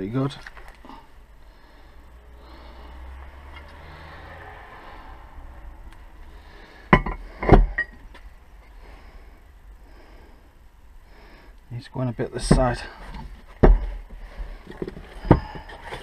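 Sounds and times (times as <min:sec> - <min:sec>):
handling and rustling: 0:12.4 - 0:16.0
heavy knocks on wooden workbench: 0:13.6 - 0:14.0.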